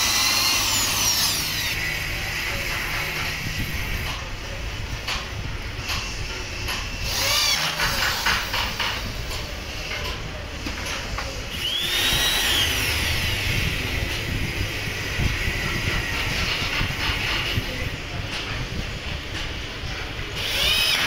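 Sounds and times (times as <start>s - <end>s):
electric drill boring into wood: 0.0s - 1.9s, 7.0s - 9.1s, 11.5s - 13.8s, 20.4s - 21.0s.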